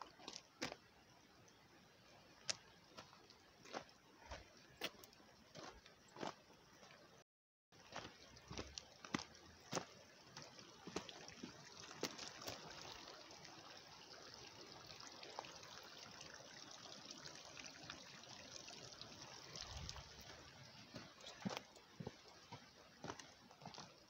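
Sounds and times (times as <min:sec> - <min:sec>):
trickle of running water: 0:00.0 - 0:07.2, 0:07.8 - 0:24.0
footsteps on stone: 0:02.5 - 0:07.0, 0:07.8 - 0:11.2, 0:20.9 - 0:24.0.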